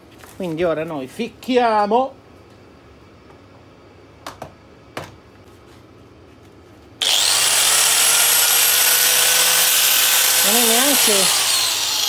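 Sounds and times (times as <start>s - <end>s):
angle grinder whining: 7.0s - 12.0s.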